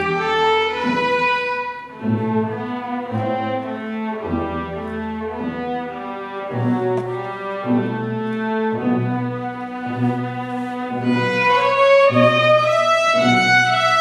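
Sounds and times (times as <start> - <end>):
cellos and double bass: 0.0 - 14.0
violins bowing sustained notes: 0.0 - 14.0.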